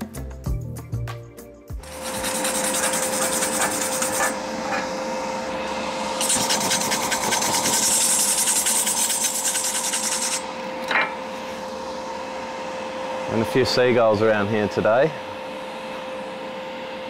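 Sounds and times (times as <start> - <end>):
steady hum: 1.6 - 17.0
wire brush scrubbing steel tube: 1.8 - 4.9, 6.2 - 10.4.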